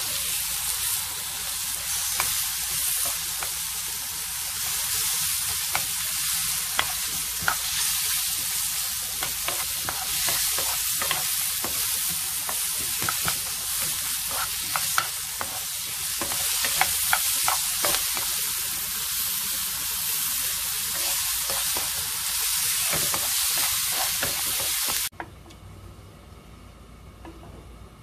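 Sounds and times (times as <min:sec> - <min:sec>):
vegetables sizzling in oil: 0:00.0 - 0:25.1
spatula scraping a pan: 0:09.2 - 0:18.3, 0:22.7 - 0:25.1.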